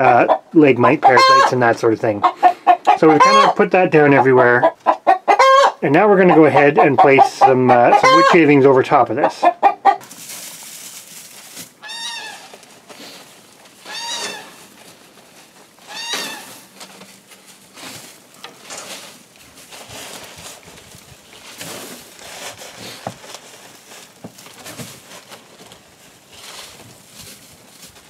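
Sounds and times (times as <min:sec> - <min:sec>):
hen squawking: 0:02.2 - 0:08.5, 0:11.8 - 0:12.6, 0:13.8 - 0:14.6, 0:15.8 - 0:16.7
wood shavings rustling: 0:10.0 - 0:28.0.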